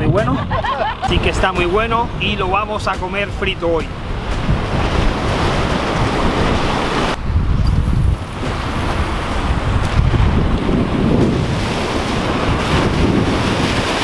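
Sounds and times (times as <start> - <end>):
wind buffeting microphone: 0.0 - 14.0
surf breaking against rocks: 8.0 - 14.0.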